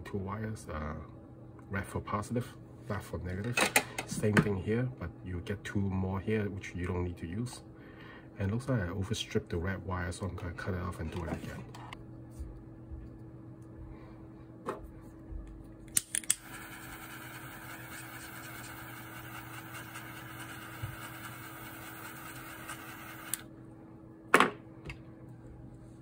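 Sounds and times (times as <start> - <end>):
torch lighter clicking: 15.9 - 16.5.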